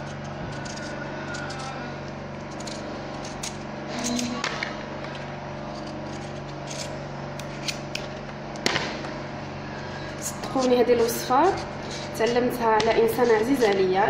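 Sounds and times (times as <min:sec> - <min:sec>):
knife scraping pumpkin skin: 0:00.0 - 0:04.4, 0:10.2 - 0:13.8
steady low hum: 0:00.0 - 0:14.0.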